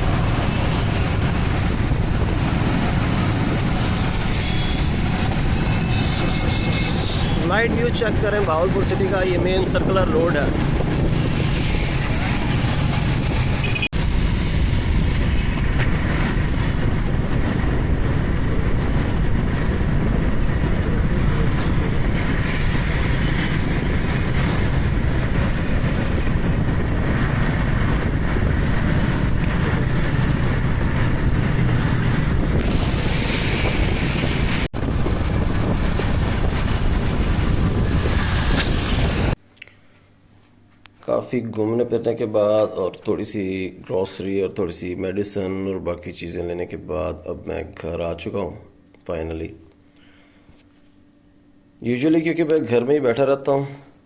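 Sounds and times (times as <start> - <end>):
wind buffeting microphone: 0.0 - 39.4
road and engine noise: 0.0 - 39.5.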